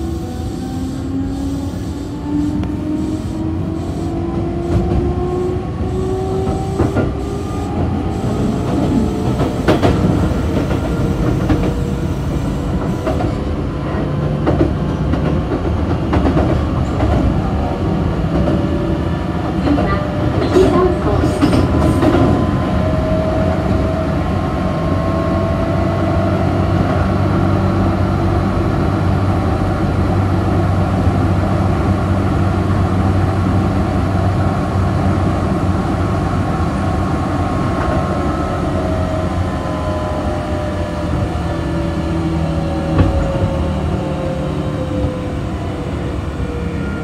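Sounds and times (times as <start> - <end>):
train wheels rumbling on rail: 0.0 - 47.0.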